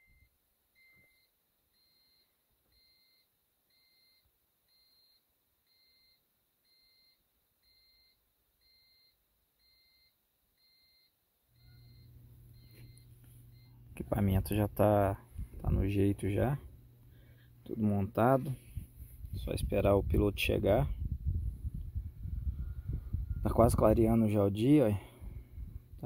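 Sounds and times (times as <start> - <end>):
faint high-pitched beep: 0.0 - 14.2, 22.5 - 24.2
steady low hum: 10.8 - 26.0.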